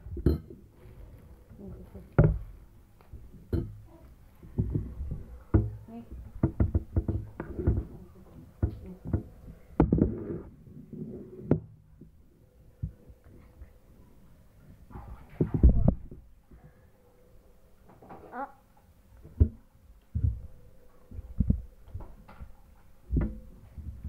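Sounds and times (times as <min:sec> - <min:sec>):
plastic cup knocking on table: 0:06.4 - 0:07.9.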